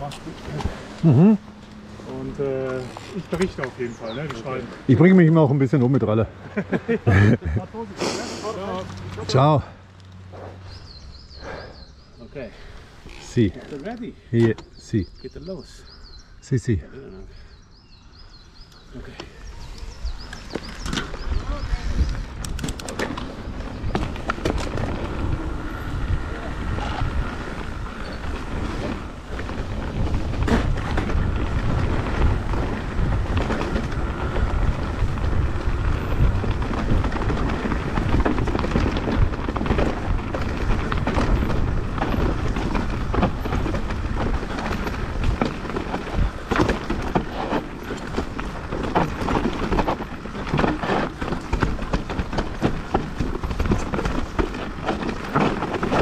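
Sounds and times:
bike rattling over rough ground: 0:00.0 - 0:07.8, 0:08.4 - 0:56.0
wind rushing over microphone: 0:17.5 - 0:56.0.

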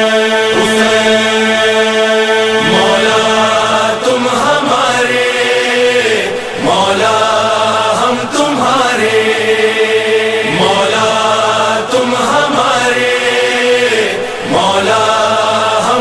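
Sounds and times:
person chanting a lament: 0:00.0 - 0:16.0.

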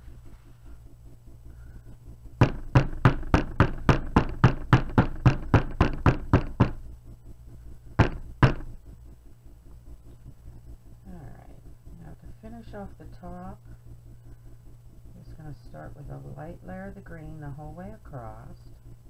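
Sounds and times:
wooden mold knocking on table: 0:02.4 - 0:06.8, 0:08.0 - 0:08.7.

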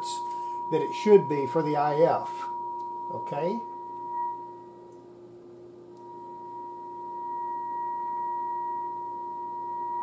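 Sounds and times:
radio test tone: 0:00.0 - 0:04.6
faint lower tone: 0:00.0 - 0:10.0.

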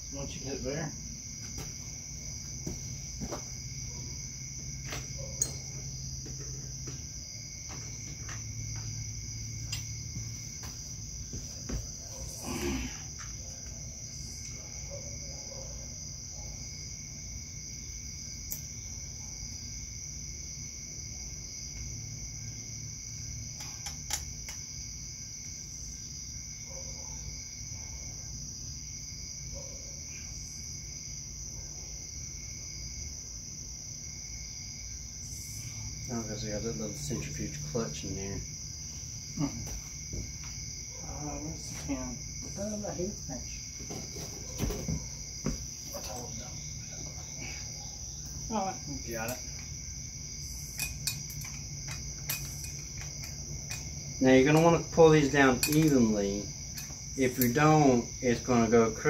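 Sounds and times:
crickets trilling: 0:00.0 - 0:59.0
clicks and knocks of metal parts: 0:50.7 - 0:53.9, 0:55.6 - 0:56.0.

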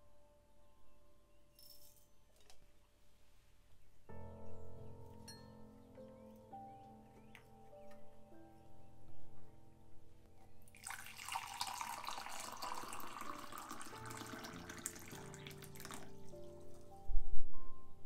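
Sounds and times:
water pouring into a mug: 0:10.7 - 0:16.8.

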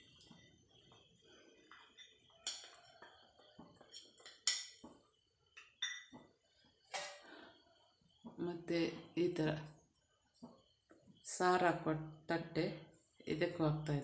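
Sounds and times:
metal cups clinking: 0:01.7 - 0:03.0, 0:03.8 - 0:04.9, 0:05.6 - 0:06.2.

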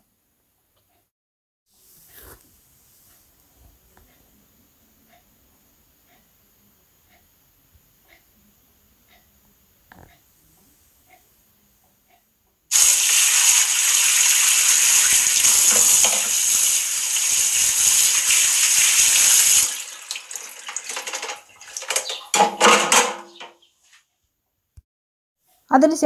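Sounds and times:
tap water spattering on metal: 0:12.7 - 0:23.6
splashes and knocks of handled parts: 0:19.9 - 0:23.5.

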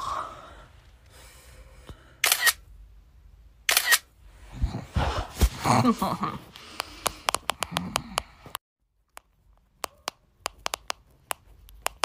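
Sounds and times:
camera shutter clicks: 0:02.2 - 0:02.6, 0:03.7 - 0:04.1.

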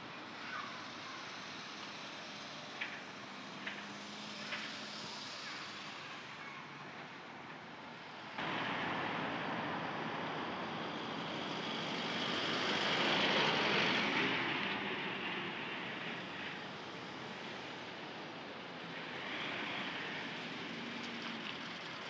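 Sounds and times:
road traffic noise: 0:00.0 - 0:22.0
truck driving past: 0:08.4 - 0:16.7.

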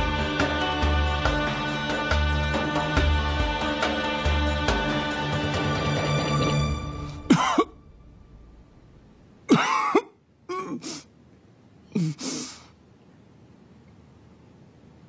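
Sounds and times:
background music: 0:00.0 - 0:09.2
person coughing: 0:07.3 - 0:07.8, 0:09.5 - 0:11.1, 0:11.9 - 0:12.6.

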